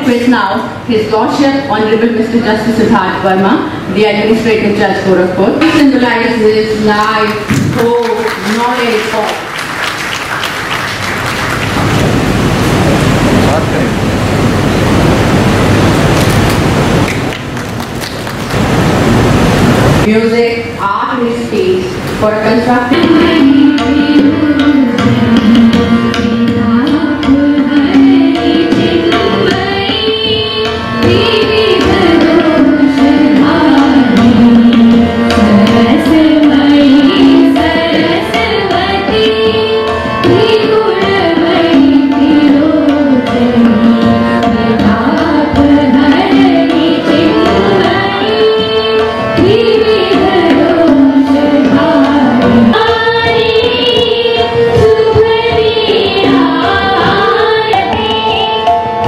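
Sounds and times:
women singing together: 22.2s - 59.0s.

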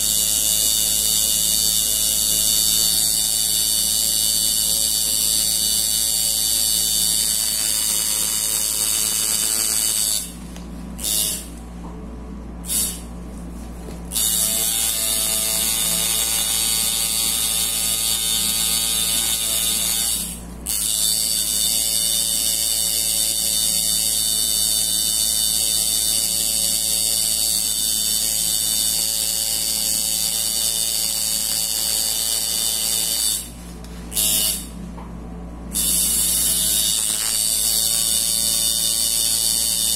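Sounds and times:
tattoo machine buzzing: 0.0s - 11.6s, 12.6s - 13.1s, 14.0s - 34.8s, 35.7s - 39.9s.

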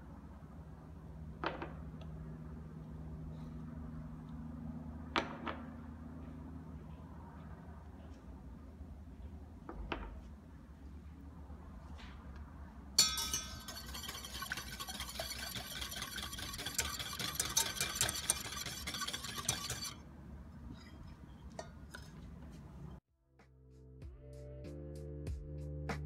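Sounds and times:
sharp metal clink: 13.0s - 13.9s
whisk scraping metal pan: 13.0s - 22.4s.

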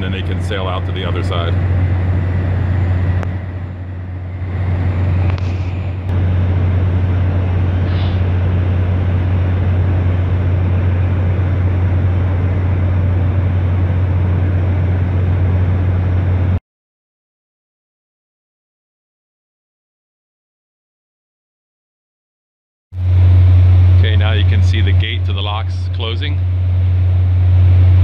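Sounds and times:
broad rushing noise: 0.0s - 16.6s
ship machinery drone: 0.0s - 16.6s, 23.0s - 28.0s.

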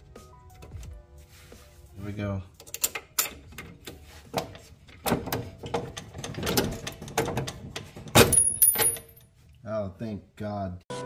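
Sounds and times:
metal bolt clicking and scraping: 2.6s - 9.3s.

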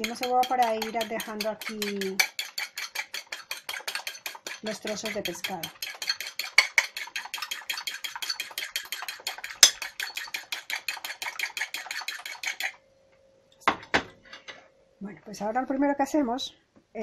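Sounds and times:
fork clinking against ceramic bowl: 0.0s - 12.7s.

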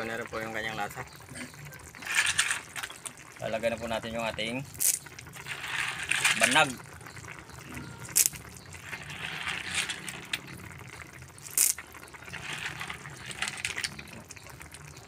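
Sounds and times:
snail shells clattering: 2.0s - 3.3s, 4.7s - 7.4s, 8.1s - 14.9s.

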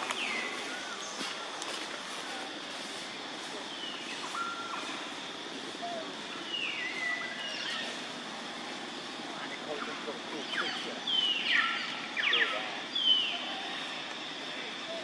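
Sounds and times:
constant high tone: 0.0s - 15.0s
steady hiss: 0.0s - 15.0s.

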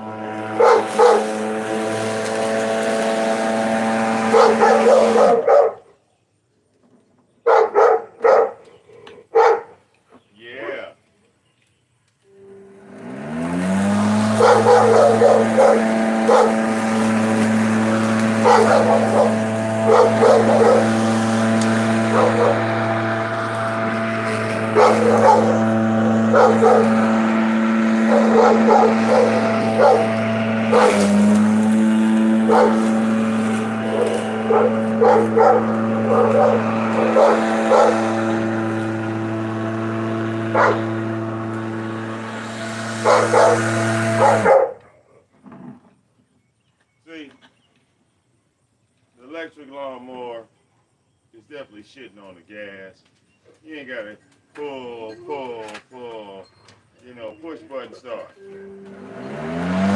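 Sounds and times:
electric lawn mower humming: 0.0s - 5.8s, 12.1s - 45.9s, 58.1s - 59.9s
dog barking: 0.6s - 1.3s, 4.3s - 5.9s, 7.4s - 8.6s, 9.3s - 9.8s, 14.4s - 16.6s, 18.4s - 20.9s, 22.1s - 22.6s, 24.7s - 25.6s, 26.3s - 27.0s, 28.1s - 31.0s, 32.5s - 32.8s, 33.9s - 38.1s, 40.6s - 40.8s, 43.0s - 43.6s, 44.2s - 44.8s.

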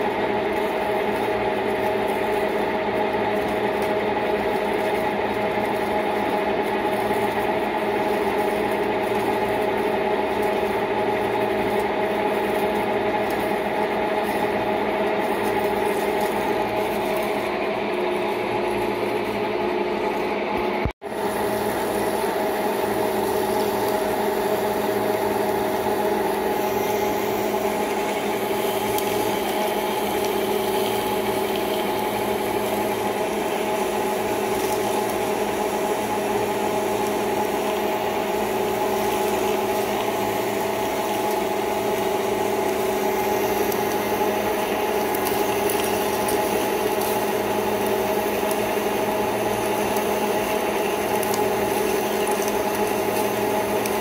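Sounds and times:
lathe geartrain hum: 0.0s - 54.0s
drill cutting metal hiss: 21.2s - 54.0s.

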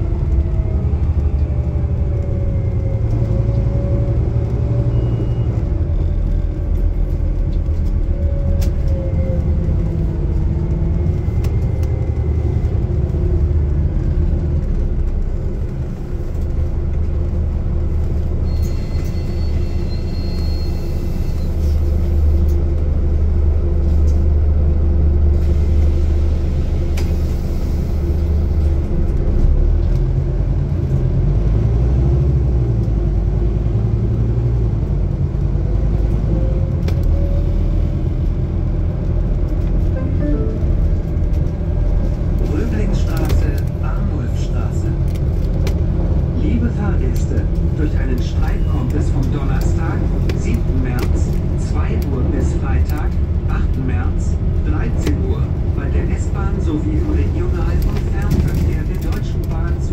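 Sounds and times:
bus engine rumble: 0.0s - 59.9s
road noise: 0.0s - 59.9s.

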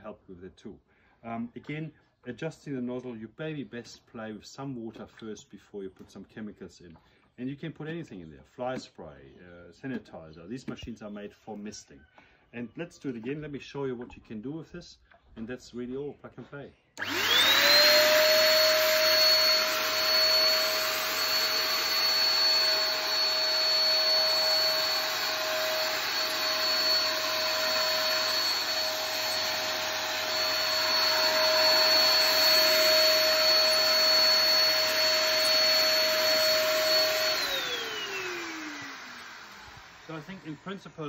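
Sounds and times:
fogger motor whine: 17.0s - 41.0s
motor winding down: 17.0s - 41.0s.

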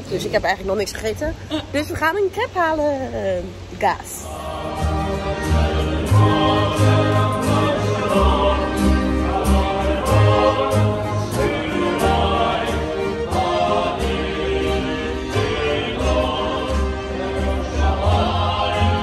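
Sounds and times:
people singing: 4.2s - 19.0s.

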